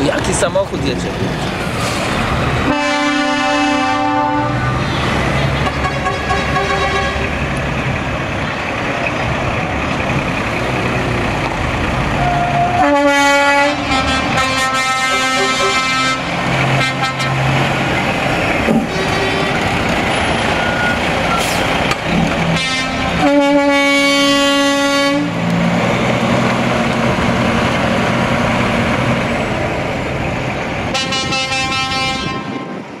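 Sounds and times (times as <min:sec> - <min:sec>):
diesel truck engine driving past: 0:00.0 - 0:31.3
truck air horn blasts: 0:02.6 - 0:07.3, 0:12.2 - 0:17.6, 0:22.5 - 0:25.3, 0:30.9 - 0:32.8.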